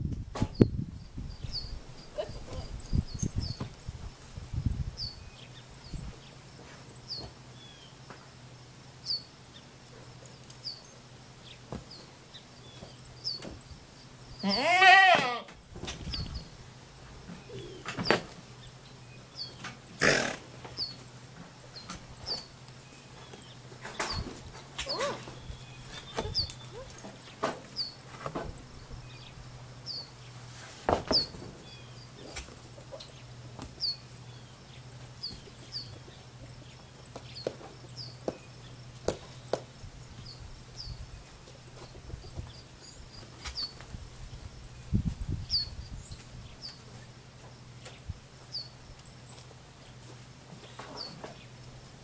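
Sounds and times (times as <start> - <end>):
small bird chirping: 21.7 - 28.0.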